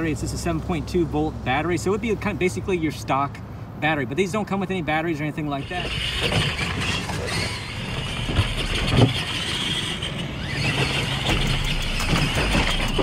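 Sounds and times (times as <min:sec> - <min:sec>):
electric motor whine: 0:05.7 - 0:13.0.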